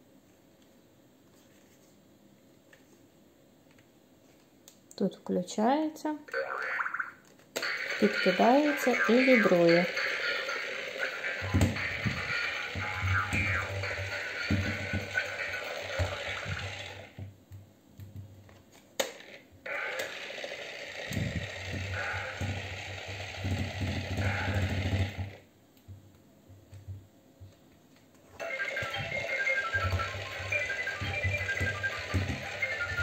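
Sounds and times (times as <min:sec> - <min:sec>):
toy electronic tune: 0:07.6 - 0:17.1, 0:28.4 - 0:33.0
vibration motor buzzing: 0:19.7 - 0:25.4.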